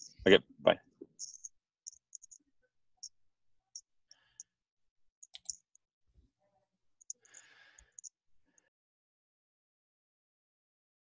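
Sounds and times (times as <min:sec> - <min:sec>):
computer mouse clicks: 0:01.2 - 0:02.4, 0:05.2 - 0:05.8.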